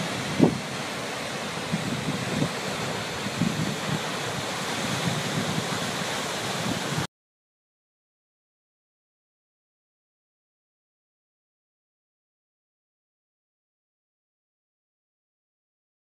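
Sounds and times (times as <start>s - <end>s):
wind buffeting microphone: 0.0s - 0.8s, 1.4s - 7.1s
waterfall rushing: 0.0s - 7.1s.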